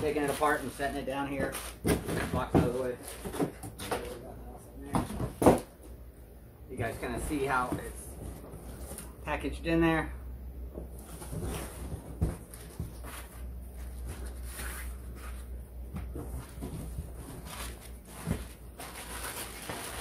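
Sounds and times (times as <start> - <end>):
plastic wrap rustling: 0.0 - 4.2, 11.0 - 20.0.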